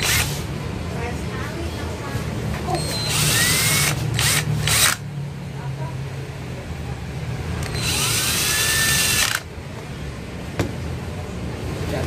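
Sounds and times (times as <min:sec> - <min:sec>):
cordless drill motor whine: 0:02.8 - 0:05.0, 0:07.6 - 0:09.5.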